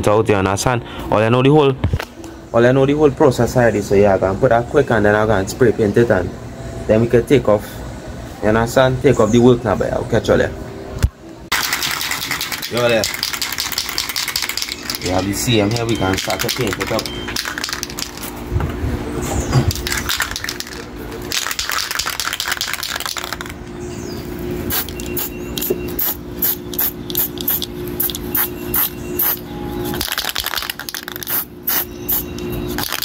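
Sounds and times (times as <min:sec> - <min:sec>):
spray paint hissing: 0:11.5 - 0:15.2, 0:19.8 - 0:23.5, 0:24.7 - 0:33.0
spray can ball rattling: 0:11.5 - 0:18.4, 0:19.7 - 0:23.6, 0:24.7 - 0:33.0.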